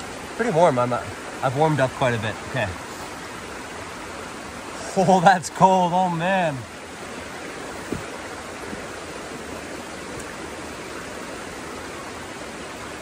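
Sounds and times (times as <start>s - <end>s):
creek water rushing over rock: 0.0s - 13.0s
low thump: 7.9s - 8.1s.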